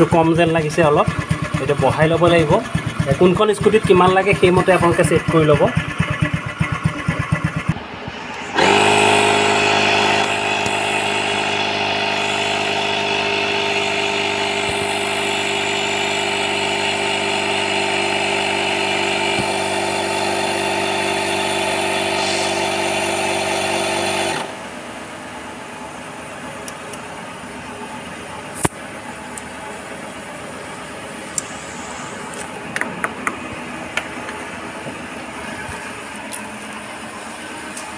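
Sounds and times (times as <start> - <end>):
scooter engine idling: 0.0 - 26.2
tyre inflator compressor humming: 0.0 - 26.2, 28.4 - 37.9.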